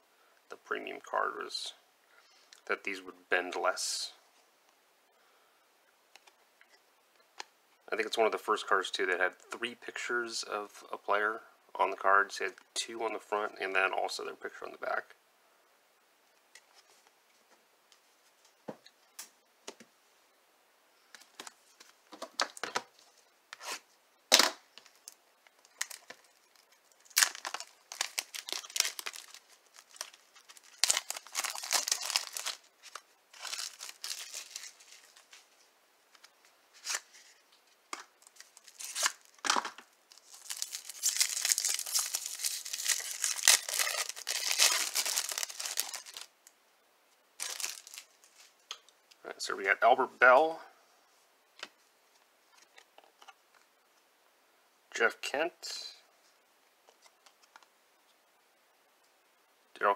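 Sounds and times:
plastic wrapper crackling: 24.8 - 35.4, 37.9 - 39.4, 40.1 - 46.3, 47.4 - 48.4.

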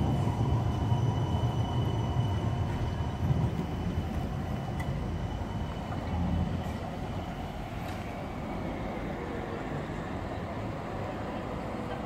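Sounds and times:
electric tram wheels rumbling: 0.0 - 12.0.

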